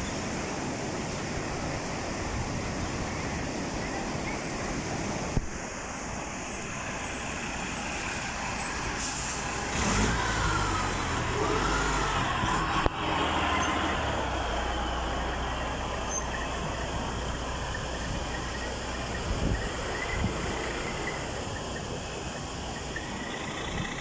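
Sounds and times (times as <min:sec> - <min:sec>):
rushing floodwater: 0:00.0 - 0:24.0
truck diesel engine: 0:06.5 - 0:24.0
air brake hisses: 0:09.0 - 0:09.5
wavering squeal: 0:10.3 - 0:21.9.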